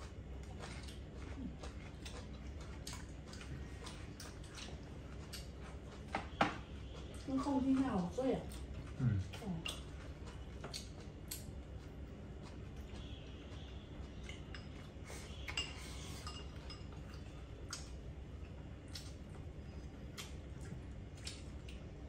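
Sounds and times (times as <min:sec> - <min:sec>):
steady low hum: 0:00.0 - 0:22.0
chopsticks clinking on porcelain bowls: 0:14.2 - 0:17.3.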